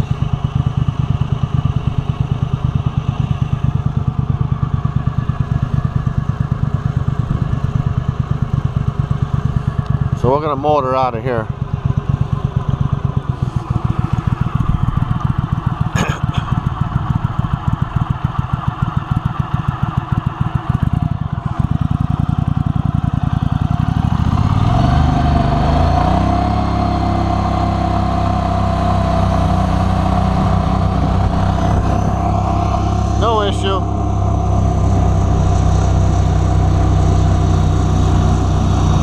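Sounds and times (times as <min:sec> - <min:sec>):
boat motor chugging: 0:00.0 - 0:39.0
motor whine: 0:13.3 - 0:18.2, 0:25.0 - 0:39.0.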